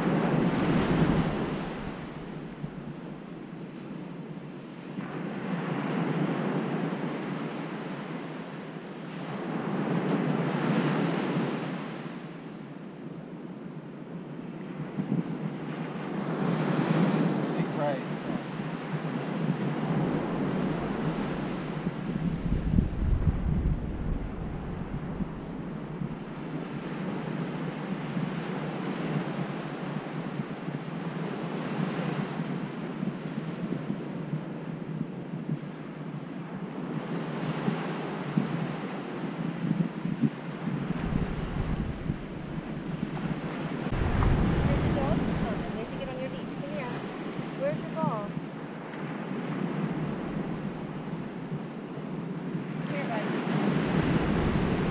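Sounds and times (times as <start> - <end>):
ocean surf breaking: 0.0 - 3.5, 15.8 - 29.0, 40.2 - 51.5, 52.4 - 54.9
wind on microphone: 0.0 - 8.3, 14.2 - 54.9.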